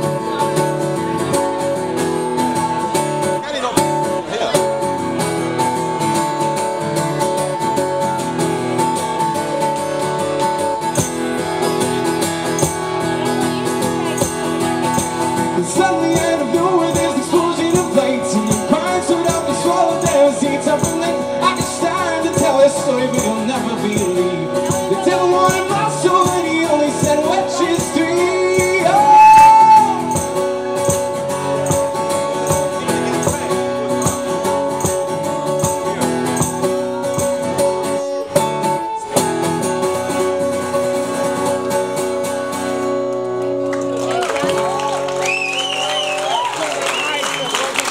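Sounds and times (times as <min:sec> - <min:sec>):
strummed acoustic guitar: 0:00.0 - 0:45.2
man singing: 0:15.3 - 0:30.4.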